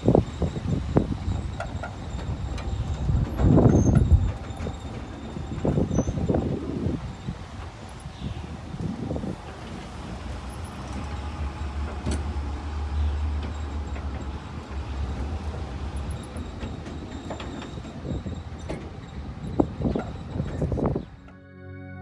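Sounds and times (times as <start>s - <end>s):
knocks and rattles: 0.0s - 8.0s
vehicle engine and road rumble: 0.0s - 21.3s.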